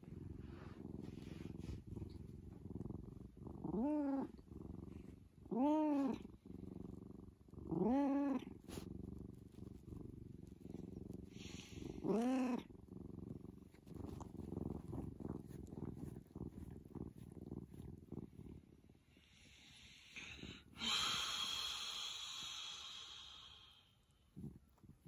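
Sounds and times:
cat purring: 0.0s - 25.0s.

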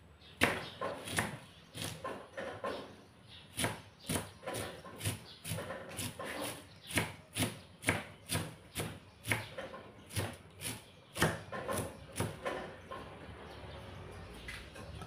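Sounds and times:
knife chopping on wooden board: 0.4s - 2.8s, 3.5s - 13.0s.

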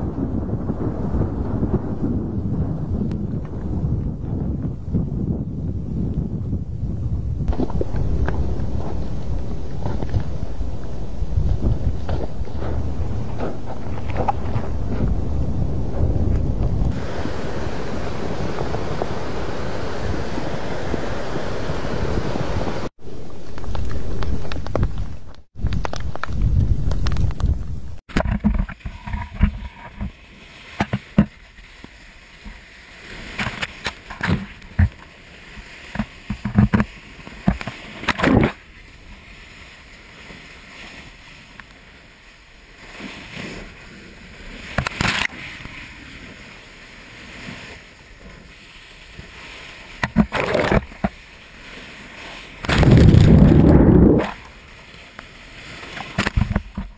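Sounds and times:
sea water splashing: 7.5s - 26.0s, 28.1s - 56.9s
wave rushing over camera: 7.5s - 26.0s, 26.6s - 56.9s
sharp cracks and pops: 23.4s - 29.6s, 44.7s - 45.4s, 52.6s - 54.5s.

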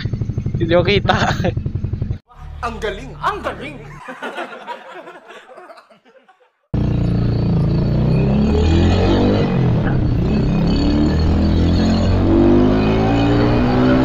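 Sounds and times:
motorcycle engine running: 0.0s - 2.2s
road and wind noise: 0.0s - 2.7s, 6.8s - 14.0s
group laughing: 2.3s - 6.7s.

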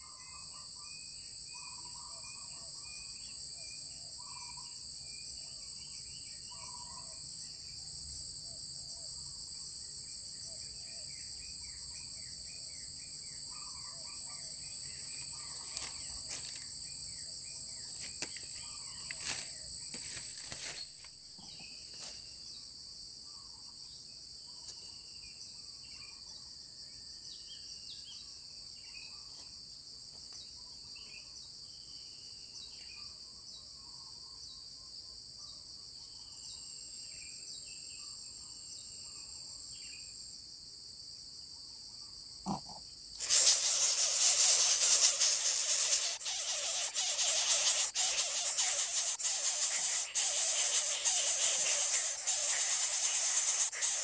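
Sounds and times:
insect chorus buzzing: 0.0s - 34.7s, 35.4s - 54.0s
sharp clicks and rustles: 19.1s - 21.2s
short bird chirps: 42.5s - 54.0s.

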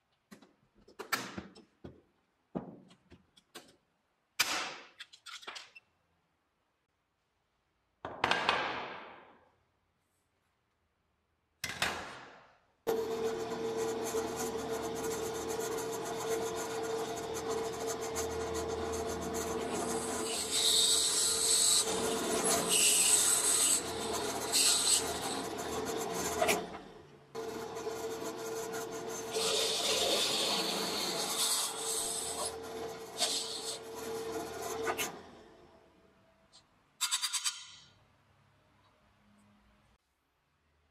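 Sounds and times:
drill bit scraping metal: 12.9s - 35.4s
drill press motor hum: 12.9s - 35.8s.

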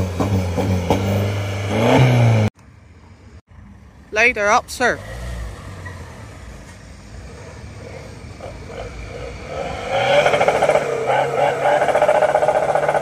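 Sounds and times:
car engine and exhaust drone: 0.0s - 13.0s.

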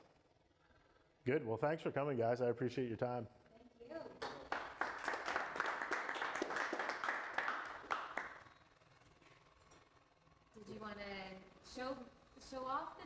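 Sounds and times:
small audience applauding: 4.2s - 8.5s.

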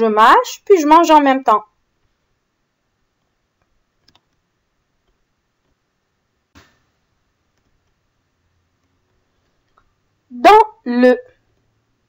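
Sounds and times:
faint clicks: 3.2s - 4.4s.

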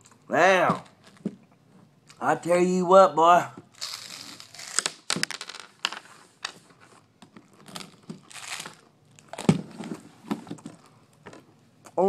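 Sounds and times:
plastic bottle crinkling: 3.7s - 11.0s.

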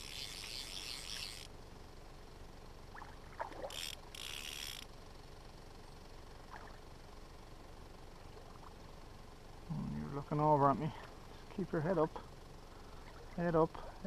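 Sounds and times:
fly line rasping through guides: 0.0s - 1.5s, 3.6s - 4.9s.

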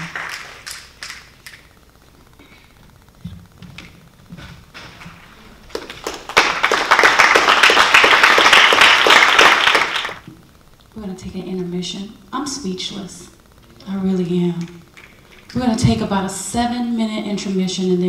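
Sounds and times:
audience applauding: 0.0s - 1.7s, 5.6s - 10.2s.

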